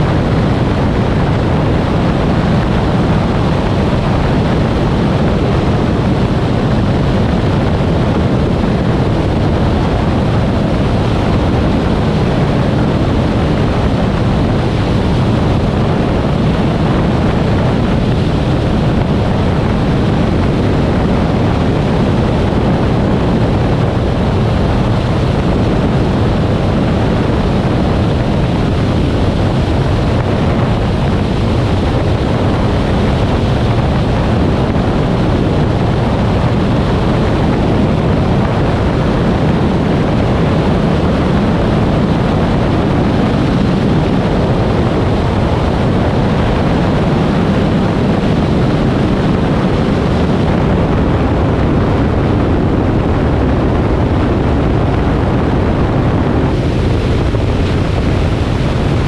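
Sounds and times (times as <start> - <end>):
aircraft engine droning: 0.0 - 59.0
wind buffeting camera: 0.0 - 59.0.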